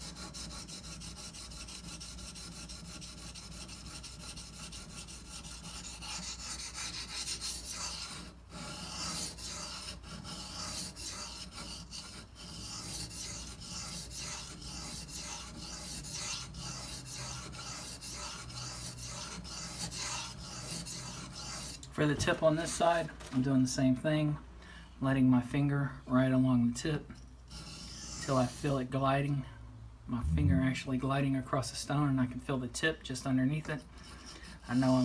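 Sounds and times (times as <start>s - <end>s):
knife grinding on water stone: 27.5s - 28.3s.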